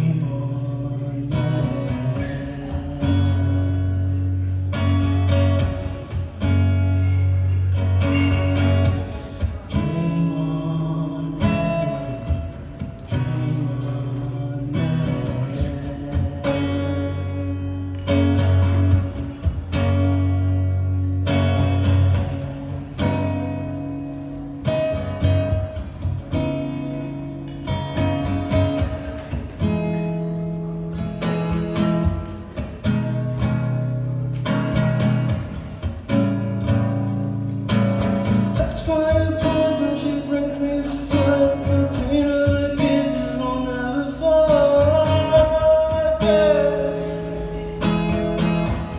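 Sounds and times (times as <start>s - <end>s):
man singing: 0.0s - 5.8s, 8.0s - 19.2s, 38.2s - 48.9s
strummed acoustic guitar: 0.0s - 48.9s.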